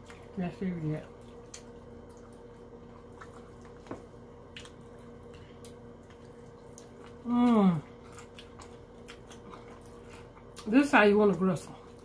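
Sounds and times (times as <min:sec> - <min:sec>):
steady low hum: 0:00.0 - 0:12.0
wet chewing and mouth smacks: 0:01.1 - 0:10.7.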